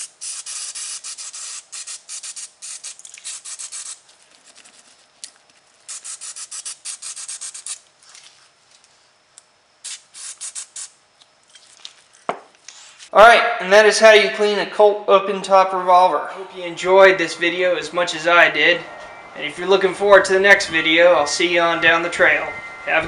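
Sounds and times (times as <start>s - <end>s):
aerosol can spraying: 0.0s - 4.0s, 5.9s - 7.8s, 9.8s - 11.0s.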